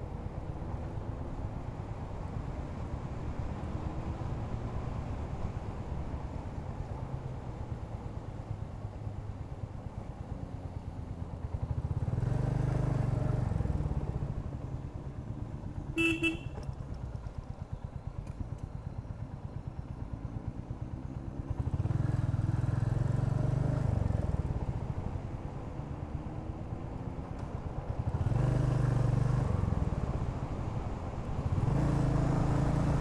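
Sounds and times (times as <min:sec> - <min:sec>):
motorcycle engine accelerating: 0:10.9 - 0:24.8, 0:27.9 - 0:30.4, 0:31.4 - 0:33.0
horn toot: 0:16.0 - 0:16.6.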